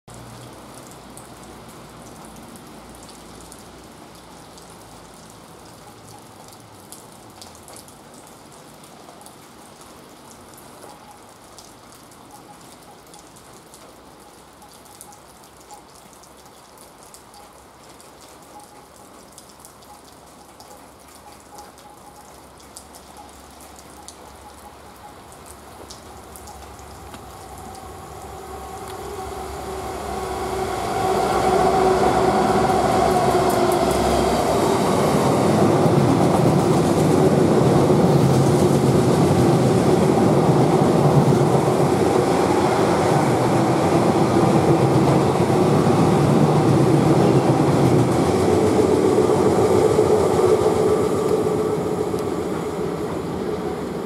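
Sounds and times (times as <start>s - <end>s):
steady rain falling: 0.1s - 54.0s
water drips and patters: 0.1s - 54.0s
diesel locomotive rumble: 26.0s - 54.0s.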